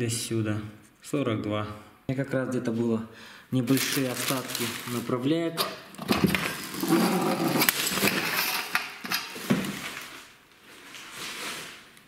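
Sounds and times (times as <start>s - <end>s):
rummaging rustling: 3.7s - 5.2s, 6.0s - 12.0s.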